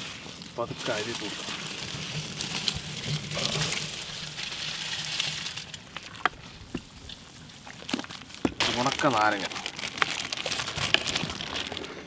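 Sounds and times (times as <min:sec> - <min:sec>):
rice pattering into boiling water: 0:00.0 - 0:12.0.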